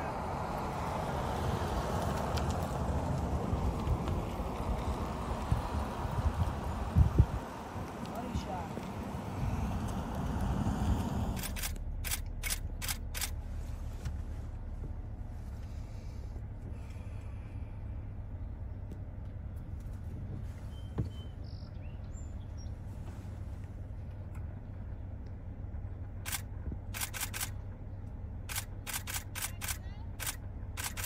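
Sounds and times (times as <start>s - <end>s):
low outdoor rumble: 0.0s - 31.0s
camera shutter clicks: 11.4s - 13.4s, 26.3s - 27.6s, 28.5s - 31.0s
faint bird chirps: 20.6s - 22.8s.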